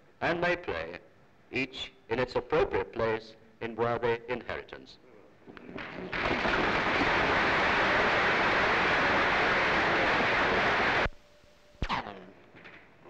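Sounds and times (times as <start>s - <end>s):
audience applauding: 5.8s - 11.1s.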